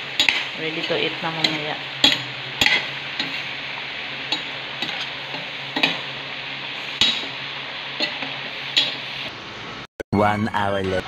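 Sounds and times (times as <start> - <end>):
food bubbling and sizzling in pot: 0.0 - 9.9
metal utensil clinking on pot: 0.1 - 3.4, 7.0 - 7.4.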